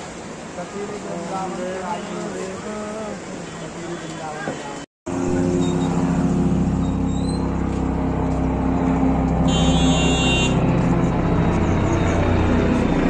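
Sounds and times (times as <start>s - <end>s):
vehicle engine running: 5.1s - 13.0s.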